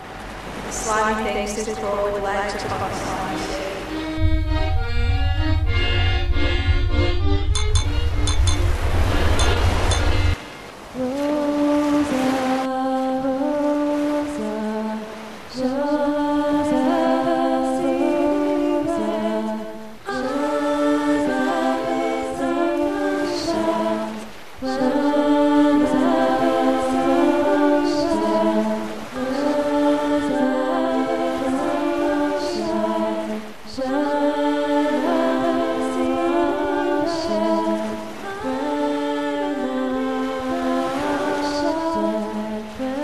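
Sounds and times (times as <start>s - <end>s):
a cappella singing: 0.6s - 4.4s, 7.8s - 43.0s.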